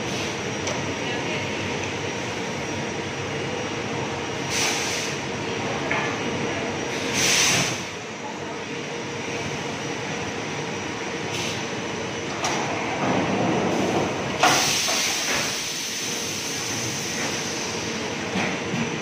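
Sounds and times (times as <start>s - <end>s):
loud sudden hiss: 4.5s - 5.2s, 7.0s - 7.9s, 14.4s - 17.8s.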